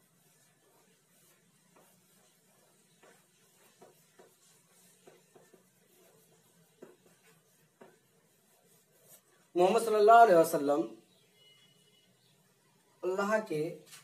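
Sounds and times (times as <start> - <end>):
chalk on a blackboard: 0.0 - 10.0.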